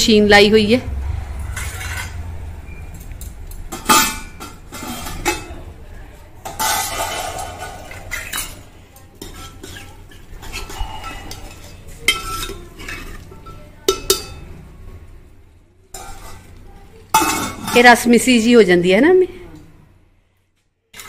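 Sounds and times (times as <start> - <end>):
ladle scraping metal pot: 1.2 - 2.8, 3.7 - 5.6, 6.4 - 14.4, 15.9 - 18.0.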